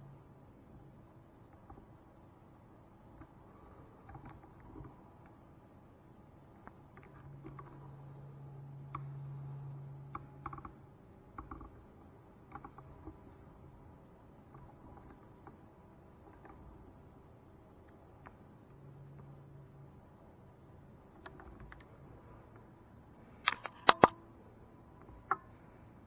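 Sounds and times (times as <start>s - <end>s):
low hum: 0.0s - 26.0s
phone handling clicks and taps: 23.4s - 24.2s.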